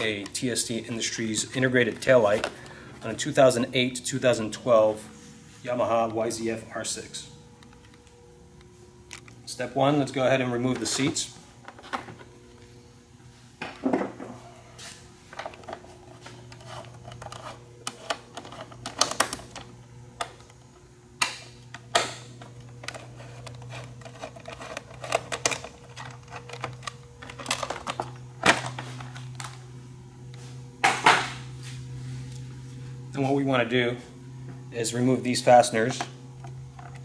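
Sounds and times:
steady low hum: 0.0s - 37.0s
tools and plastic parts clattering: 22.7s - 29.6s.

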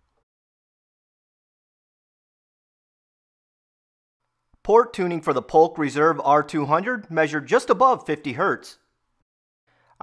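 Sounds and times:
voice: 4.7s - 8.8s.

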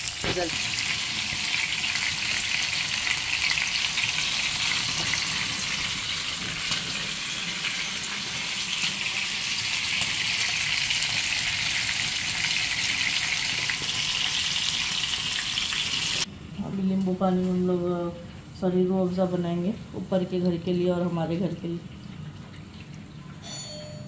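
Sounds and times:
chicken frying in hot oil: 0.0s - 16.3s.

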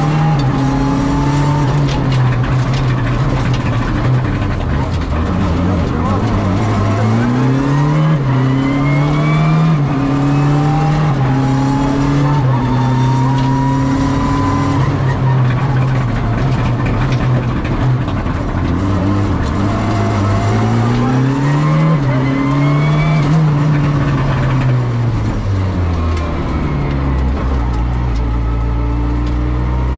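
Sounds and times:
rally car engine revving through gears: 0.0s - 29.9s.

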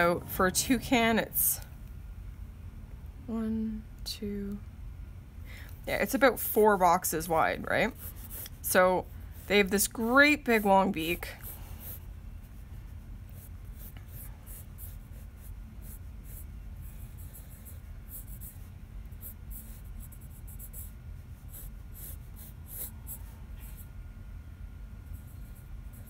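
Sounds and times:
low steady hum: 0.0s - 26.0s
pencil sketching on paper: 7.1s - 23.9s.

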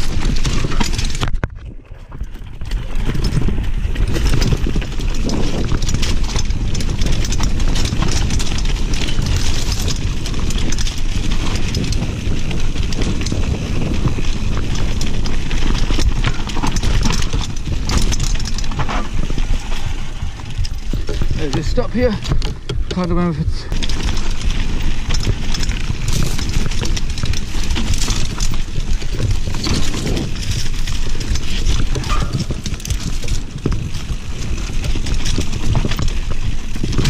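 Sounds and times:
bike clattering over bumps: 0.0s - 37.0s
tyres crunching over dirt and stones: 0.0s - 37.0s.

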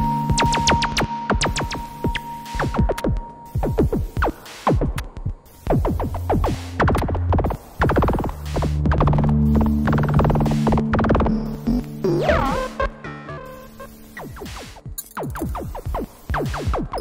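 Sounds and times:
low synth drone: 0.0s - 4.3s, 5.9s - 14.2s
synthesizer pitch sweeps: 0.0s - 4.8s, 5.6s - 14.8s.

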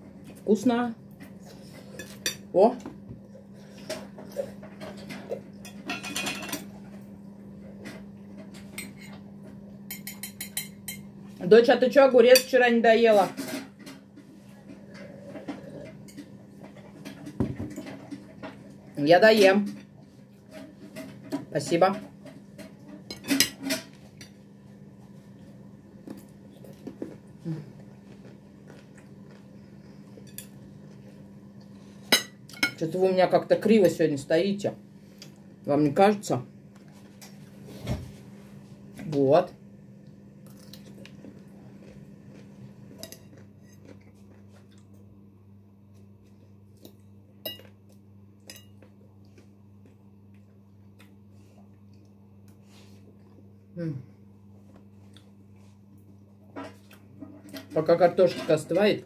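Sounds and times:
steady low hum: 0.0s - 59.0s
cutlery clinking on plate: 9.9s - 11.1s.

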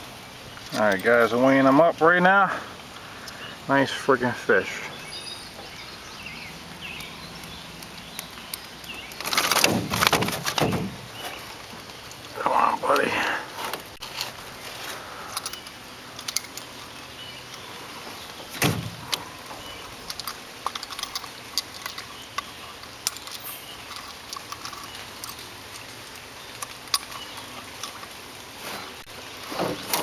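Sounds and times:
light clicks and rattles: 6.9s - 17.7s, 18.5s - 28.2s.

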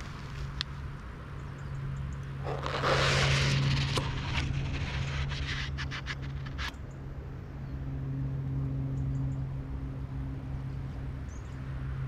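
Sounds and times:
low mechanical hum: 0.0s - 12.0s
rush of noise: 2.3s - 6.7s.

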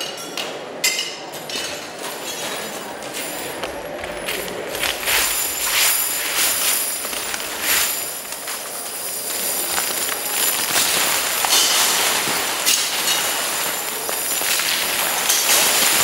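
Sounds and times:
steel nails clattering on metal: 0.0s - 16.0s.

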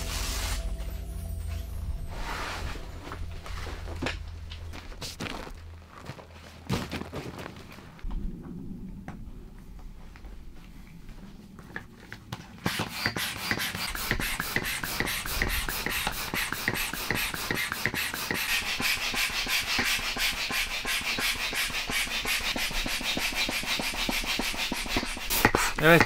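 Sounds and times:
air pump puffing: 12.6s - 26.0s.

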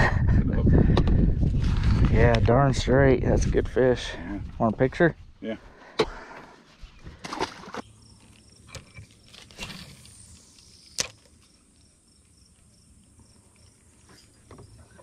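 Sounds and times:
faint insect chirping: 7.7s - 15.0s.

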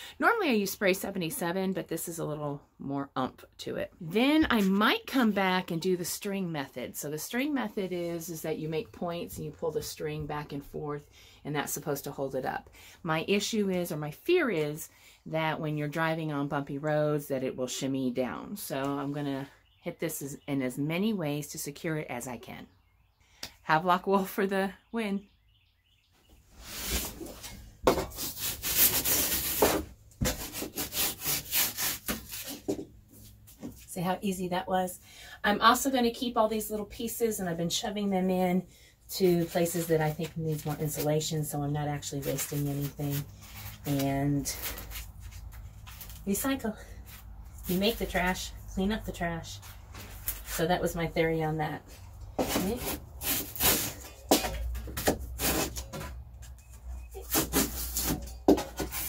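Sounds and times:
hand saw cutting insulation: 28.1s - 32.5s.

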